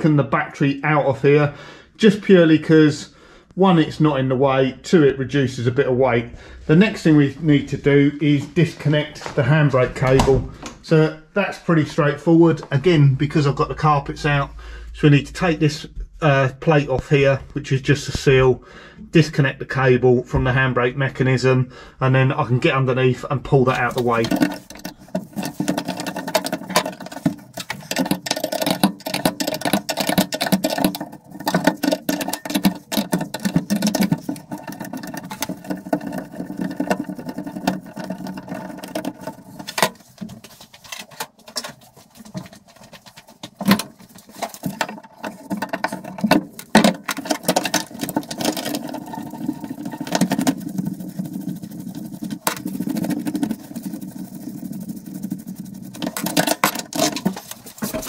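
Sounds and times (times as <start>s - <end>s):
hand tools on metal: 23.6s - 58.0s.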